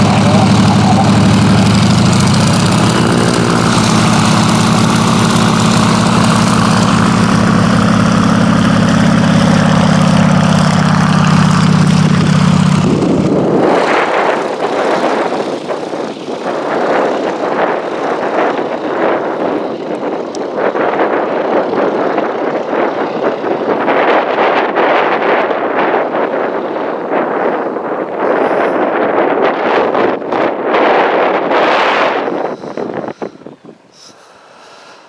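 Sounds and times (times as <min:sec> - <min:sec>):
propeller engine running: 0:00.0 - 0:35.0
wind buffeting microphone: 0:00.0 - 0:35.0.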